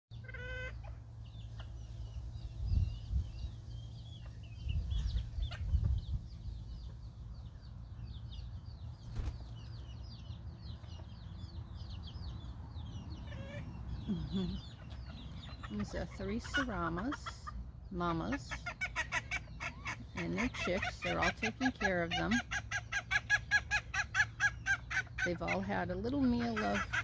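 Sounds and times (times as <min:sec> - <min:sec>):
chicks peeping: 0:00.1 - 0:27.0
low microphone rumbles: 0:02.0 - 0:09.0.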